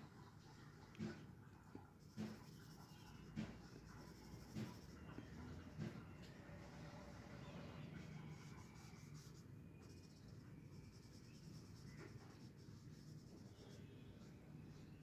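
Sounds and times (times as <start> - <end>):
faint low hum: 0.0 - 15.0
marker scratching on paper: 1.8 - 6.0, 7.8 - 15.0.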